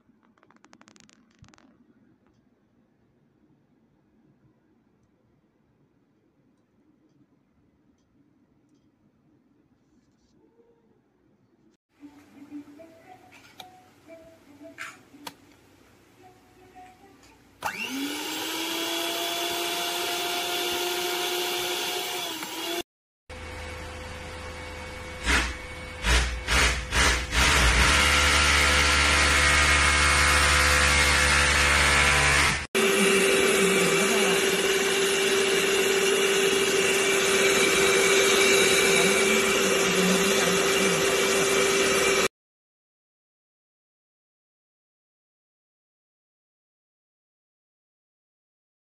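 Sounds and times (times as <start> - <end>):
click: 8.7 - 9.0
mixer motor whining: 17.6 - 42.3.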